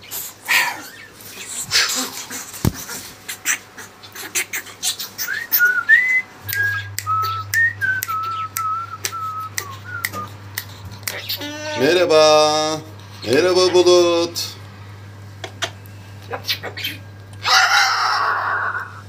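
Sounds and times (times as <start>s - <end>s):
wings flapping and feathers rustling: 1.2s - 3.4s
whistled tune: 5.2s - 10.4s
cockatoo clicks: 6.4s - 11.4s.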